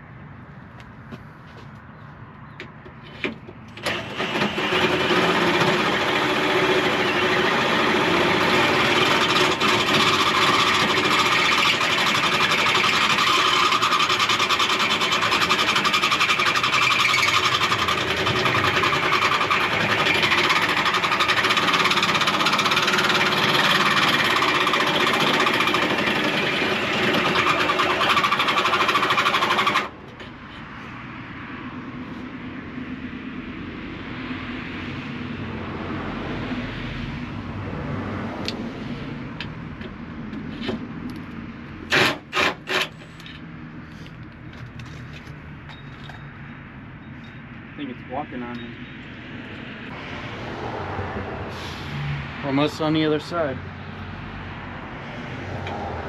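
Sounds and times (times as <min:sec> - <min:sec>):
power drill boring metal: 0:03.8 - 0:29.9, 0:41.9 - 0:43.4.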